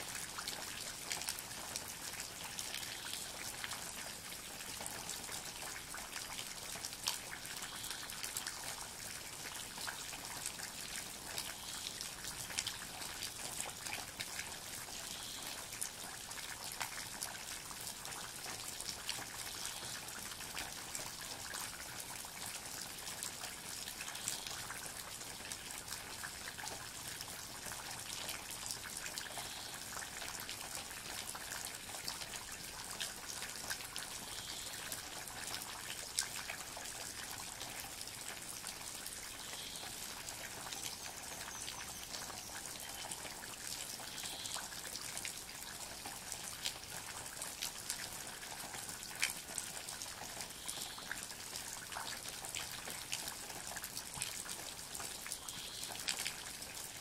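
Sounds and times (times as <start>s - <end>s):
rain falling on trees: 0.0s - 57.0s
close raindrop ticks: 38.6s - 56.4s.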